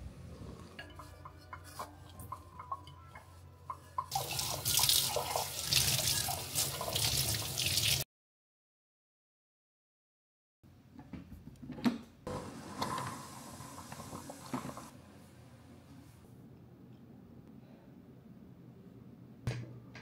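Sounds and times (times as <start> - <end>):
tap water running into sink: 4.0 - 8.0.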